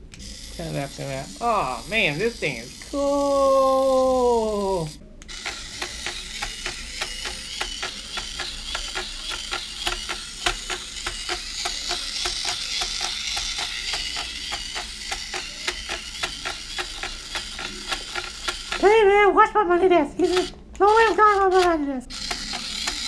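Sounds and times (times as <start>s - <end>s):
small motor whir: 0.0s - 19.0s, 20.2s - 23.0s
fast plastic ticking: 5.3s - 19.0s.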